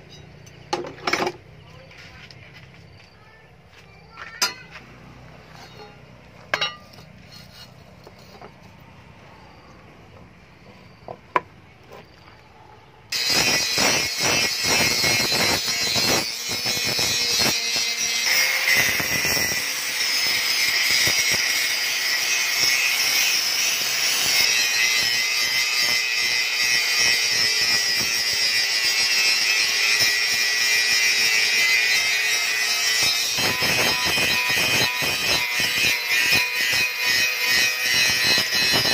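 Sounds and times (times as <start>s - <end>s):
angle grinder grinding metal: 4.3s - 11.1s, 13.1s - 38.9s
handling steel blade: 5.4s - 8.8s.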